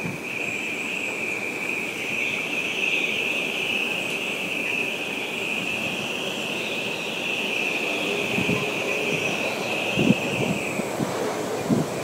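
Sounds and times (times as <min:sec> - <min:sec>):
gusting wind and rain: 0:00.0 - 0:12.0
high wind whistle: 0:00.0 - 0:12.0.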